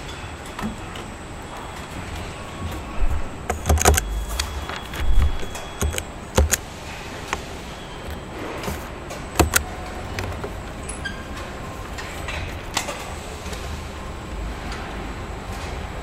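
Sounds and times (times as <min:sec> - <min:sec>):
machinery hum: 0:00.0 - 0:16.0
brief pitched beep: 0:04.0 - 0:06.0.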